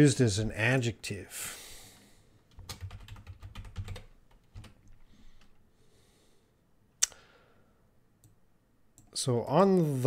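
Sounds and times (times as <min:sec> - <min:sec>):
computer keyboard typing: 0:02.5 - 0:05.6.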